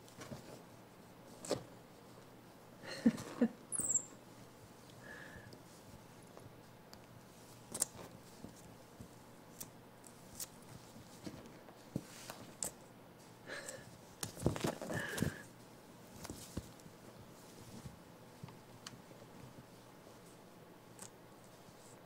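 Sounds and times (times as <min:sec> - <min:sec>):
monkey squeaking: 0:03.7 - 0:04.1.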